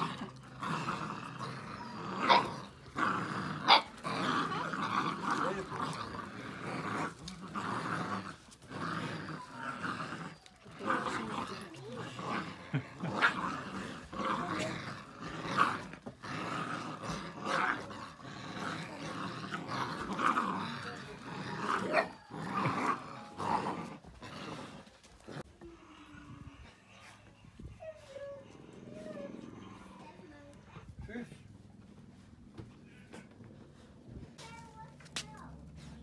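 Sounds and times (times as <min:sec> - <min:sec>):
puppies growling in play: 0:00.0 - 0:36.0.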